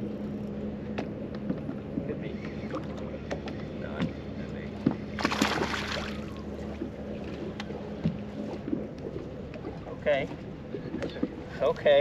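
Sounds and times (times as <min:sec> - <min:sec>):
steady low hum: 0:00.0 - 0:12.0
fish splashing at surface: 0:05.2 - 0:06.2.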